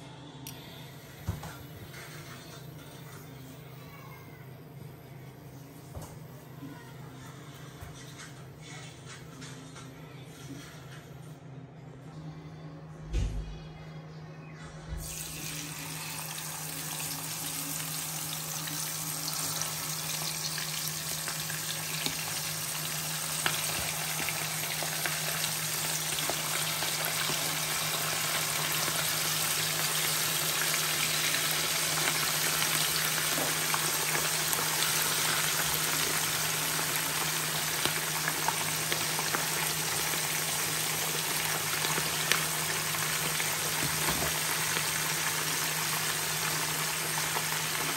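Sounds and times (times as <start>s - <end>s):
fish sizzling in hot oil: 15.0s - 47.9s.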